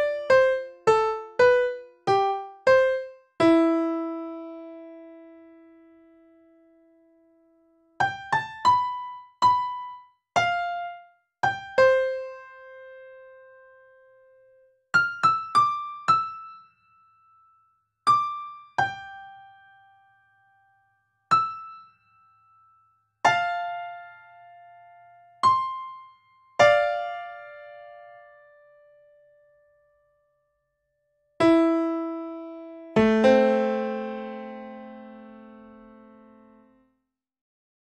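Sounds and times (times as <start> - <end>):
slow piano notes and chords: 0.0 - 30.3, 31.4 - 36.8.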